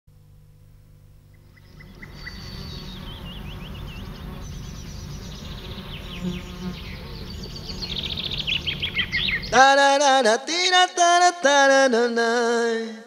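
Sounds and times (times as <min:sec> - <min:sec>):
insects buzzing: 0:00.2 - 0:10.8
birds chirping: 0:01.3 - 0:09.8.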